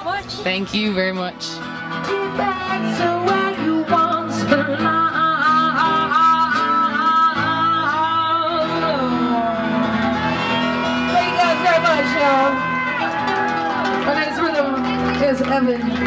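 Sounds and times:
acoustic guitar: 0:00.0 - 0:16.0
woman singing: 0:02.0 - 0:10.2.

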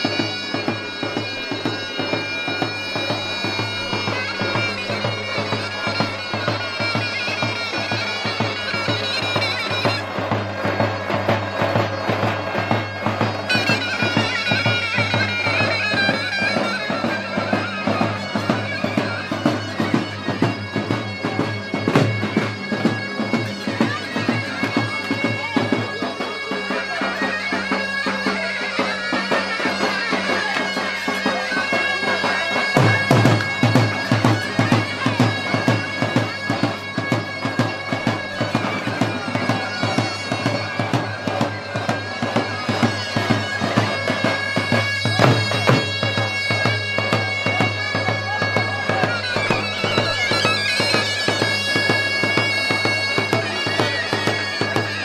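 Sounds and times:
held drone tones: 0:00.0 - 0:16.2
drum beats: 0:00.0 - 0:55.0
shrill reed wind instrument: 0:00.0 - 0:55.0.

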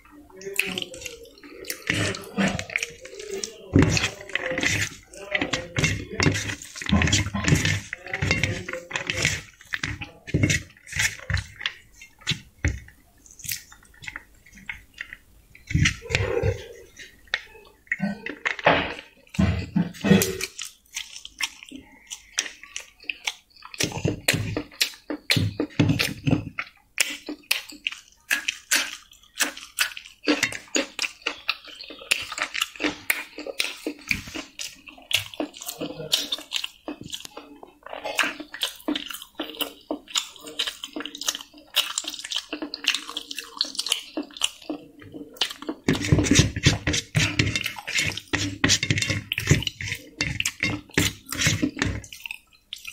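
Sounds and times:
chewing with mouth clicks: 0:00.0 - 0:52.9
fingers mixing rice on steel plate: 0:00.0 - 0:52.9.

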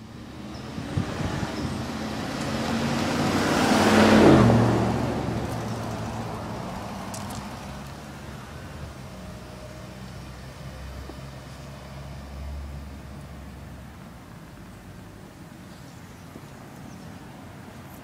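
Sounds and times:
vehicle passing by: 0:00.0 - 0:13.9.

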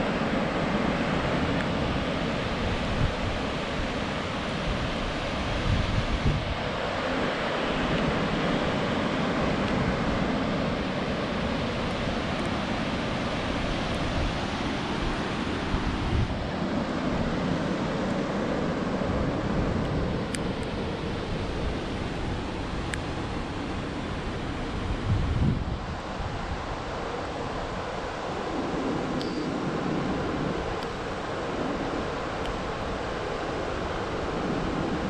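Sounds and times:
white-water rapids rushing: 0:00.0 - 0:20.2
wind rumble on microphone: 0:00.0 - 0:35.0.

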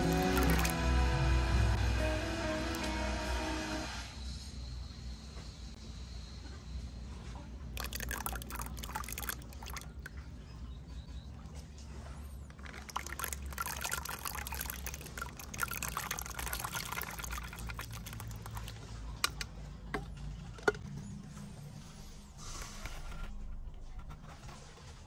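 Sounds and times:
water pouring: 0:00.0 - 0:01.0, 0:07.8 - 0:10.2, 0:12.6 - 0:19.4.

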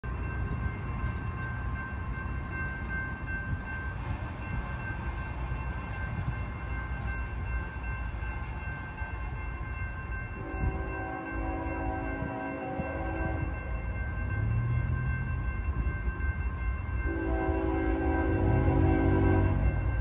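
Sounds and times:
crossing warning bell ringing: 0:00.0 - 0:20.0
train horn: 0:10.4 - 0:13.7, 0:17.1 - 0:19.9.

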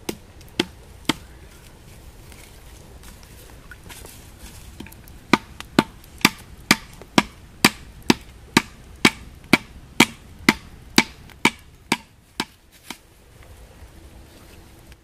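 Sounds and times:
machete striking wooden stake: 0:04.8 - 0:13.0.

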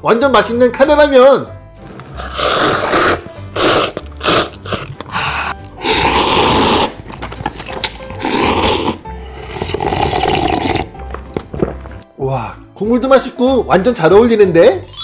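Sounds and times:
person slurping noodles: 0:01.8 - 0:11.4.

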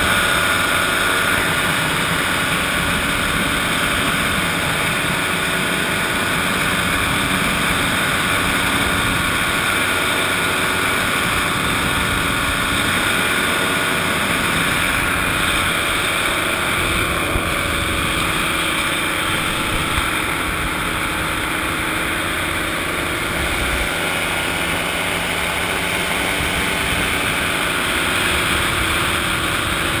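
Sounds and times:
paratrike engine and propeller drone: 0:00.0 - 0:30.0.

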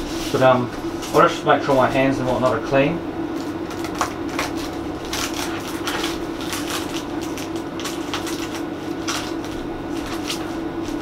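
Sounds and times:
low steady hum: 0:00.0 - 0:11.0
wrapping crinkling and rustling: 0:03.3 - 0:11.0.

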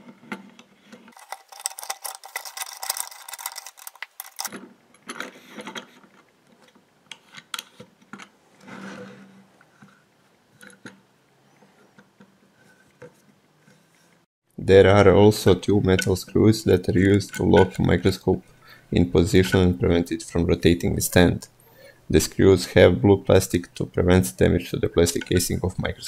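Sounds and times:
metal parts clicking and scraping: 0:01.1 - 0:08.3.

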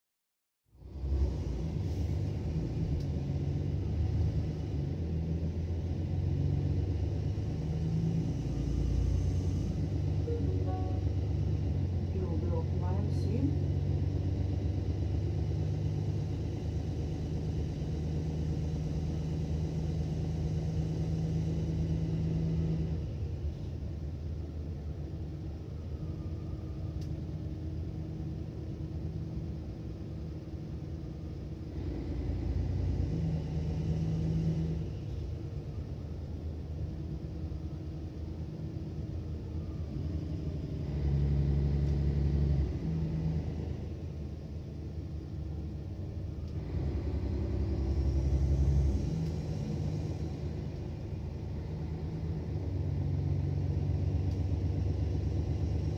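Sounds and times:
bus engine rumbling drone: 0:00.7 - 0:55.9.

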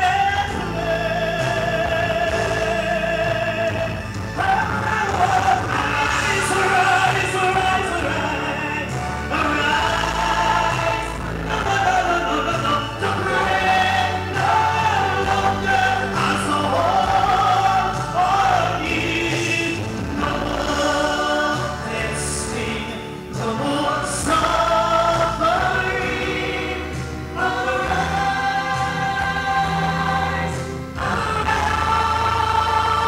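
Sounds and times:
low instrumental accompaniment: 0:00.0 - 0:33.0.

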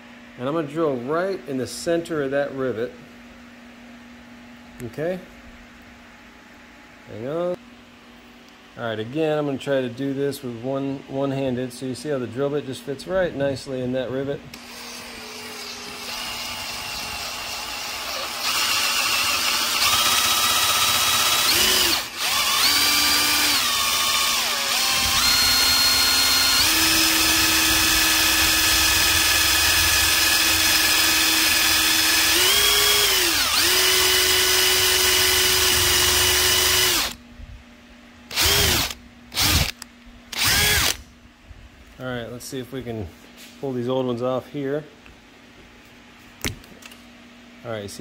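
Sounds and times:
electric drill whining: 0:14.6 - 0:37.2, 0:38.3 - 0:41.0.

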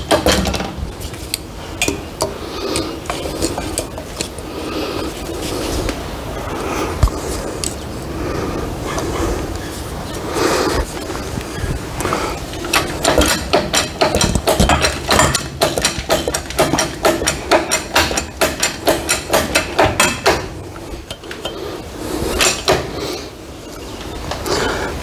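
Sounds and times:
rapid metallic clicking: 0:12.5 - 0:21.7.

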